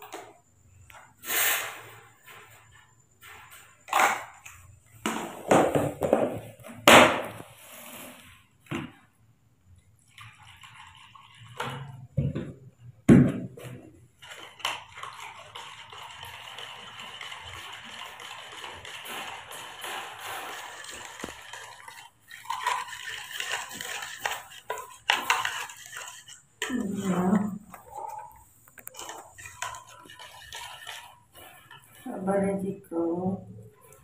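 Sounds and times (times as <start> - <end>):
plastic containers knocking and clattering: 3.4 - 7.5, 8.6 - 9.1, 11.4 - 32.1.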